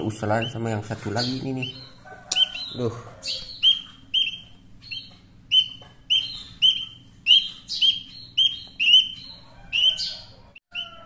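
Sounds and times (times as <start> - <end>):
bird chick chirping: 0.0 - 11.0.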